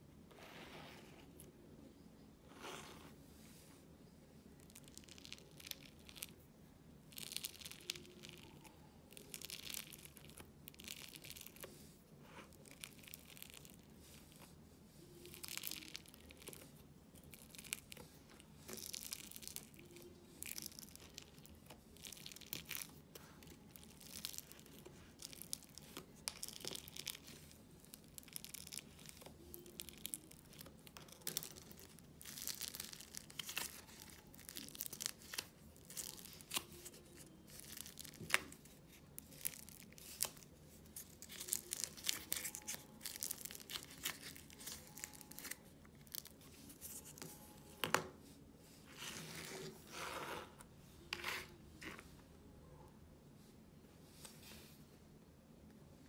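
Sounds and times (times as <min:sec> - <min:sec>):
sticky clay crackling and tearing: 0:07.1 - 0:11.8, 0:15.2 - 0:47.3.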